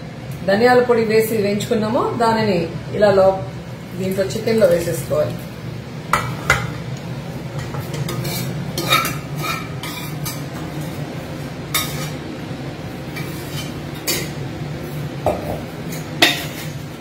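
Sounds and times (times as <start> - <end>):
steady low hum: 0.0 - 17.0
metal ladle scraping a pan: 7.6 - 11.0, 11.7 - 12.2, 13.1 - 14.4, 15.4 - 16.9.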